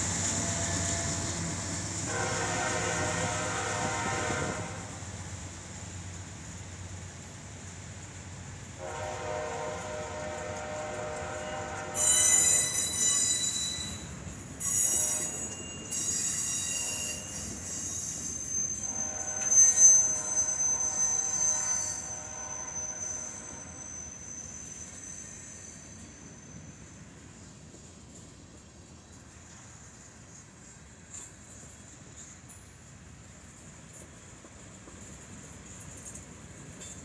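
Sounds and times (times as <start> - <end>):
freight cars rolling on rails: 0.0 - 37.0
wheel flanges squealing: 12.0 - 27.0.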